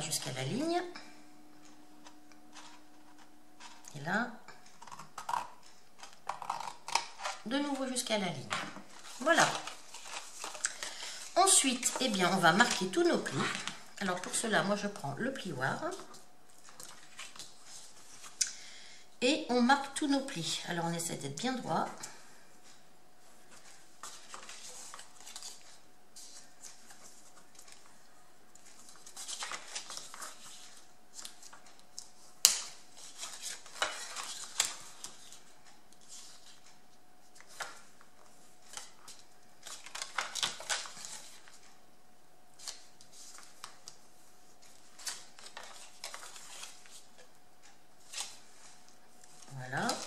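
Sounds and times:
paper rustling: 4.7s - 14.5s, 16.0s - 18.4s, 22.7s - 41.8s, 42.6s - 50.0s.

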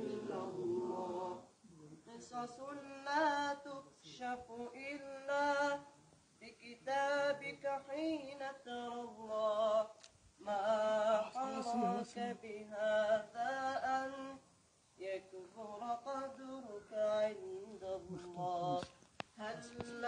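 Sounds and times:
boys singing unaccompanied: 0.0s - 14.4s, 15.0s - 20.0s.

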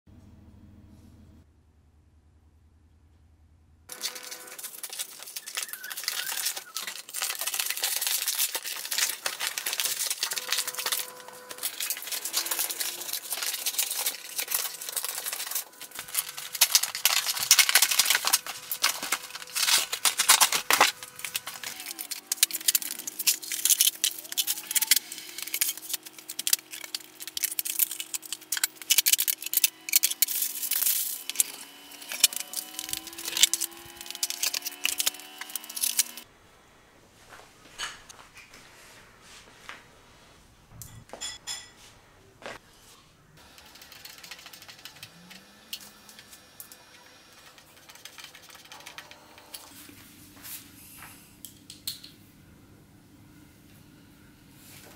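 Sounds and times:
cardboard being cut and torn: 3.9s - 36.2s.

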